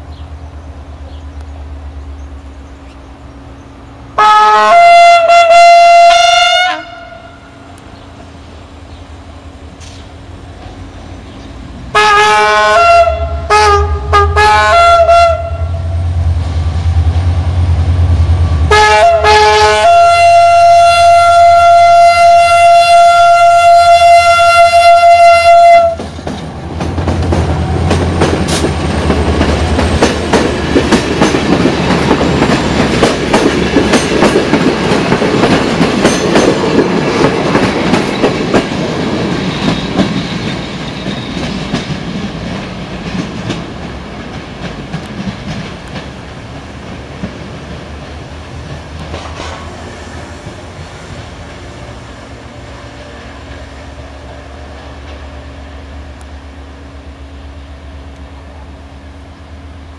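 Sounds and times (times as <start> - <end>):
train horn blasts: 4.2 - 7.8, 11.9 - 16.1, 18.7 - 26.1
train wheels clattering over rails: 9.7 - 11.9, 25.8 - 55.5.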